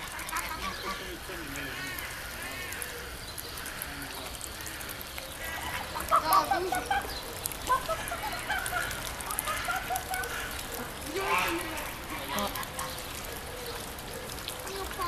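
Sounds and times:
geese honking: 0.0 - 3.0, 5.4 - 13.2.

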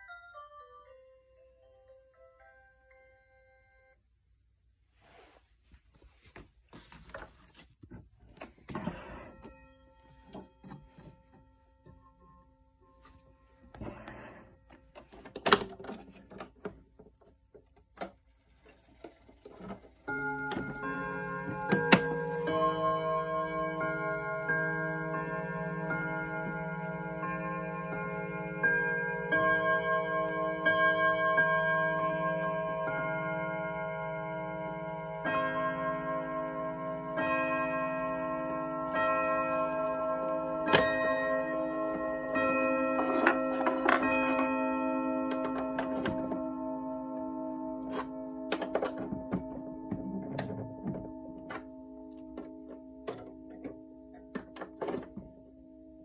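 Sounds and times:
knocks and clicks handling a clock: 7.8 - 12.1, 13.8 - 44.7, 45.3 - 46.5, 47.8 - 55.5
clock chime ringing: 8.7 - 14.6, 19.6 - 56.0.

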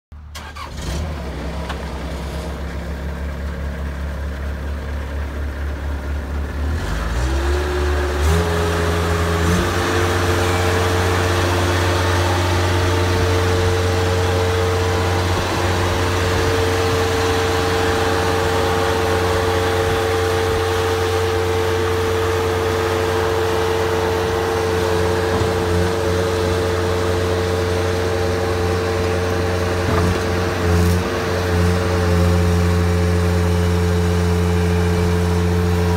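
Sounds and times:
diesel engine revving: 0.2 - 35.9
steady whine: 9.1 - 28.3.

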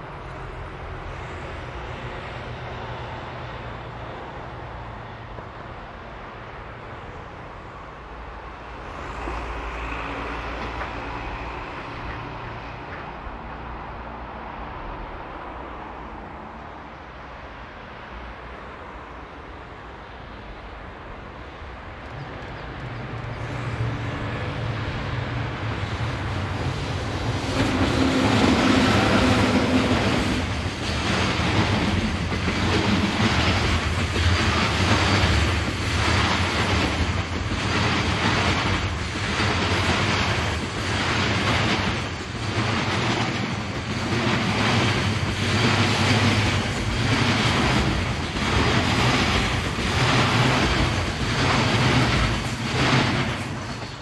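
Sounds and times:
electric locomotive passing: 0.0 - 54.0
wheels clattering on rails: 26.5 - 54.0.

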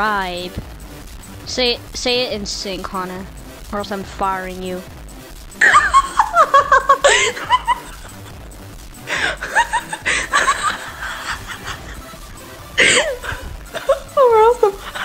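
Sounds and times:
laughter from phone message: 5.6 - 8.3.

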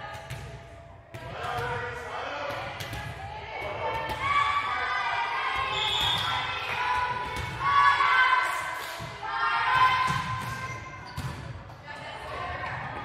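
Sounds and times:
people shouting in a gym: 0.0 - 13.0.

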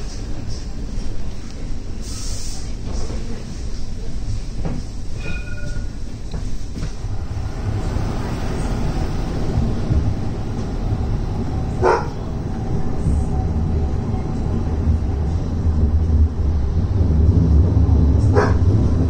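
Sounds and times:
tram rumbling: 0.0 - 19.0
tram wheel squeal: 5.0 - 6.2.

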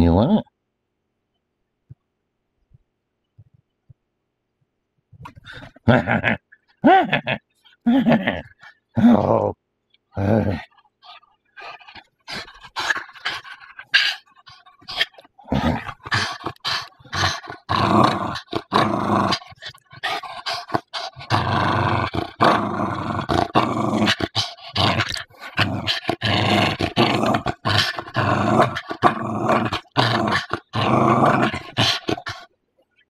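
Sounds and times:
small dog play-growling: 10.3 - 32.5.

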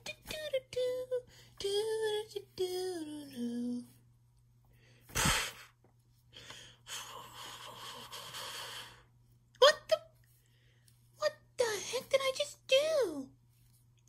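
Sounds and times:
person singing wordless tune: 0.0 - 4.0.

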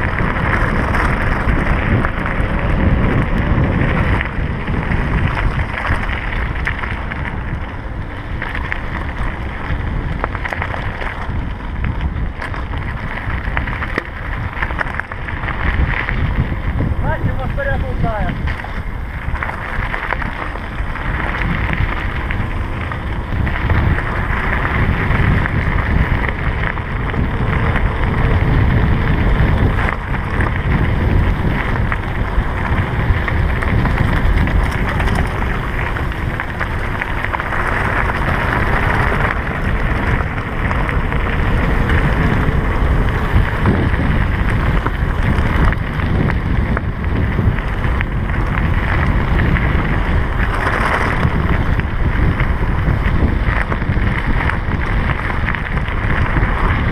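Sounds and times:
tyres rolling over gravel: 0.0 - 56.9
wind rushing over microphone: 0.0 - 56.9.

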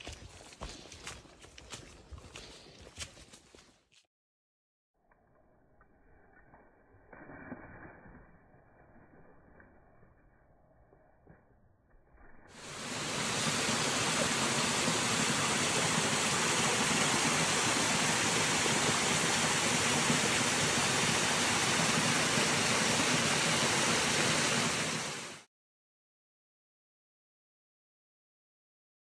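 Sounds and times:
waterfall rushing: 12.6 - 25.5.

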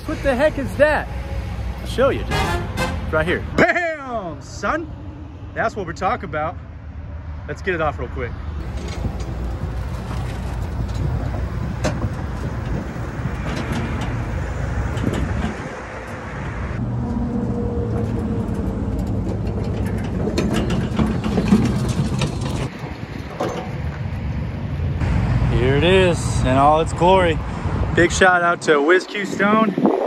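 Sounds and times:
highway traffic noise: 0.0 - 30.0
motorized dolly knocks and rattles: 18.0 - 23.9.

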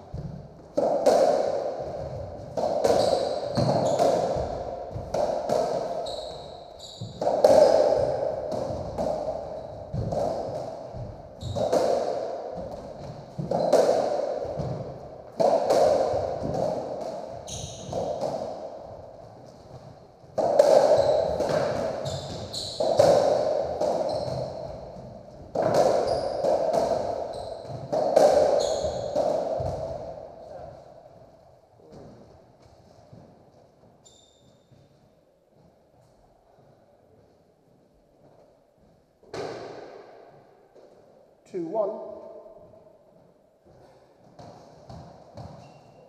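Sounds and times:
ball hit by rackets: 0.1 - 6.4, 7.0 - 30.2.

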